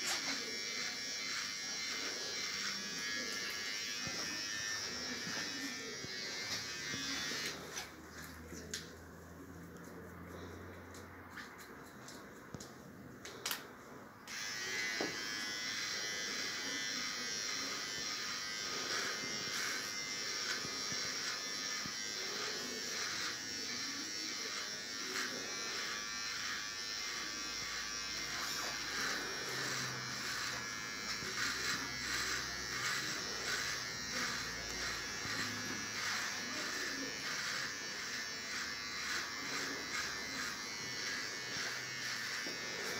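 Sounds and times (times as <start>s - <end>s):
electric shaver buzzing: 0.0s - 8.0s, 14.3s - 42.9s.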